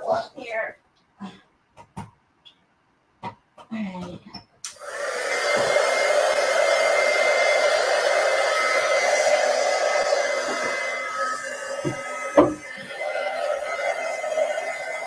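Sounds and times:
hair dryer running: 0:04.7 - 0:15.0.

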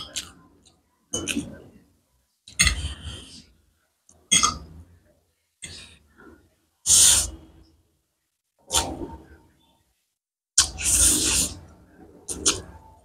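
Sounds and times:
slurping and chewing noodles: 0:10.6 - 0:11.7.

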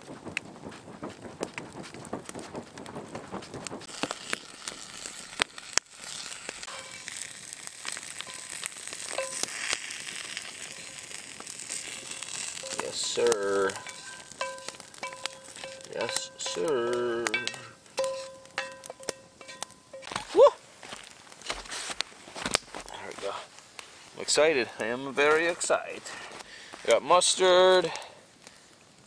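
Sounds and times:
campfire crackling and popping: 0:00.0 - 0:29.0
spatula scraping skillet: 0:02.9 - 0:22.0
food sizzling in skillet: 0:03.8 - 0:22.0.

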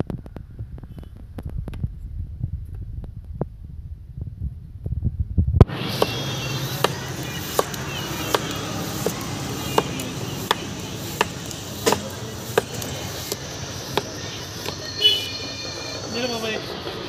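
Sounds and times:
steady hiss: 0:05.6 - 0:17.0.

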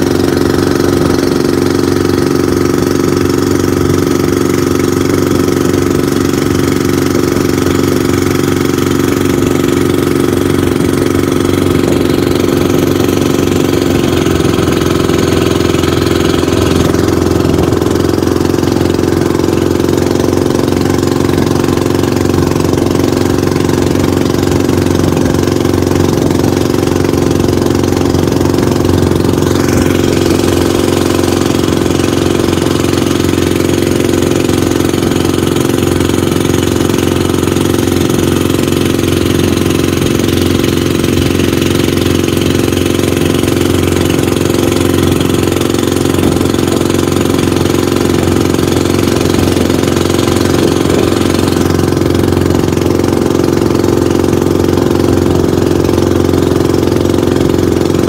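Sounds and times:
boat engine running: 0:00.0 - 0:58.0.

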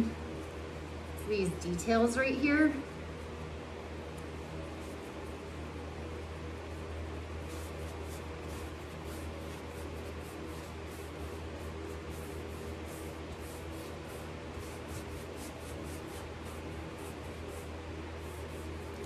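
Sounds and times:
steady low hum: 0:00.0 - 0:19.0
scratchy brush strokes on wood: 0:07.4 - 0:19.0.

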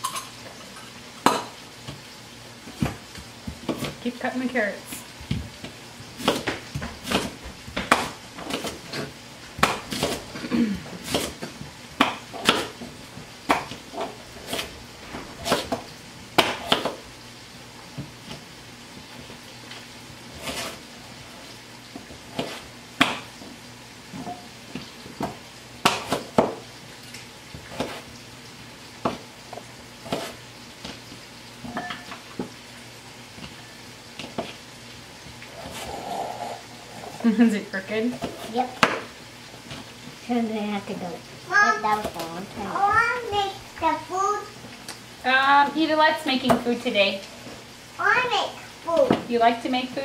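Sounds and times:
knives chopping on plastic boards: 0:06.2 - 0:10.3, 0:11.0 - 0:12.8, 0:16.4 - 0:17.0, 0:22.4 - 0:23.3, 0:25.2 - 0:26.6.

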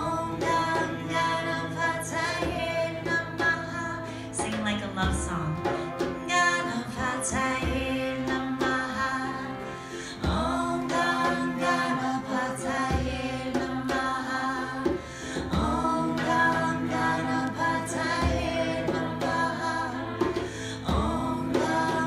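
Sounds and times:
harmonium drone: 0:00.0 - 0:22.0
woman singing a devotional chant: 0:00.0 - 0:22.0
frame drum strokes: 0:10.1 - 0:22.0.

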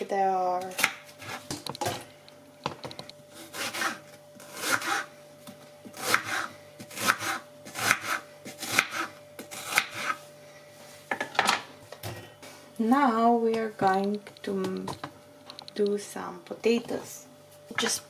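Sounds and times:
knife slicing onion on board: 0:03.4 - 0:05.1, 0:06.0 - 0:10.2.

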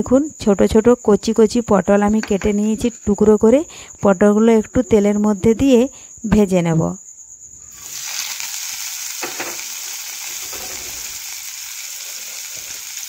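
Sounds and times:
vegetables sizzling in hot oil: 0:07.7 - 0:13.0.

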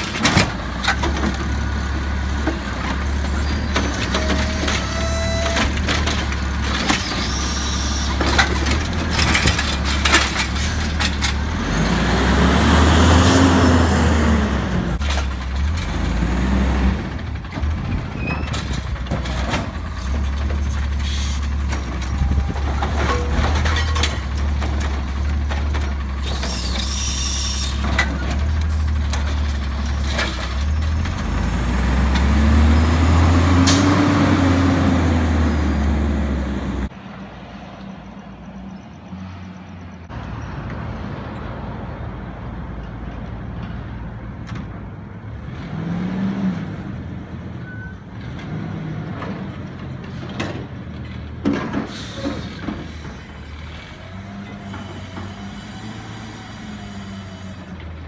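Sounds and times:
diesel engine running: 0:00.0 - 0:37.0
air brake hisses: 0:51.9 - 0:52.6.

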